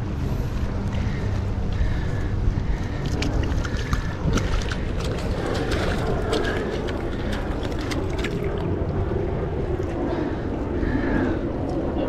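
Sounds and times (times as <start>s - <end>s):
wind rumble on microphone: 0.0s - 12.0s
water sloshing in rock pool: 2.8s - 10.4s.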